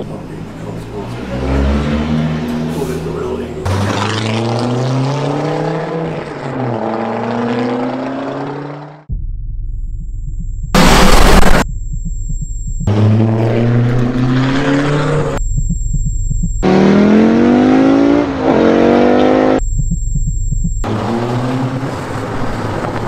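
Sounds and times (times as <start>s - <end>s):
rally car engine revving: 0.0s - 9.1s, 10.8s - 11.6s, 12.9s - 15.4s, 16.6s - 19.6s, 20.8s - 23.0s
low rapid pulsing: 9.0s - 17.7s, 19.5s - 22.3s.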